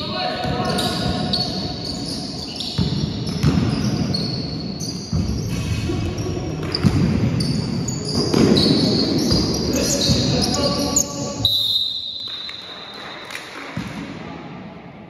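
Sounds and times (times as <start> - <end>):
sports hall din: 0.0 - 15.0
shoes squeaking on floor: 0.4 - 12.6
basketball bouncing: 2.6 - 5.7, 6.6 - 10.5.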